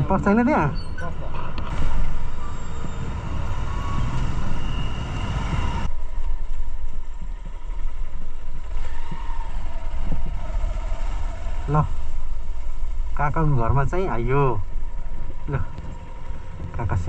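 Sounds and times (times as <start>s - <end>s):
surrounding traffic: 0.0s - 17.0s
motorcycle engine running: 5.8s - 17.0s.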